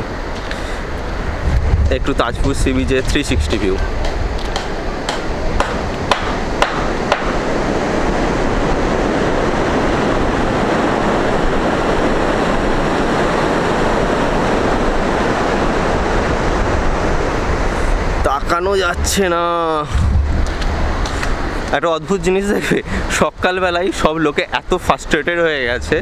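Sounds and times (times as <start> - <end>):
sea surf: 0.0 - 26.0
wind: 0.0 - 26.0.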